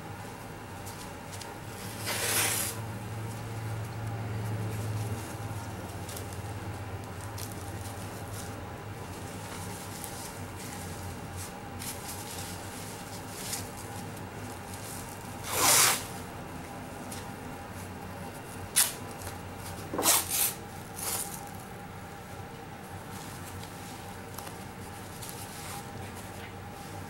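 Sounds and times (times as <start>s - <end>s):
faint handling rustle: 0.3s - 19.9s, 20.8s - 27.0s
adhesive tape ripping off roll: 2.0s - 2.8s, 15.4s - 16.1s, 18.7s - 19.0s, 20.0s - 21.3s.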